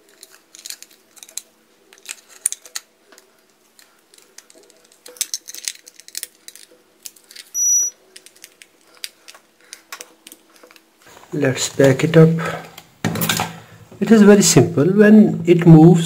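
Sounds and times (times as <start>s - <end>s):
plastic device clicks and rattles: 0.0s - 7.5s
short high electronic beep: 7.6s - 8.0s.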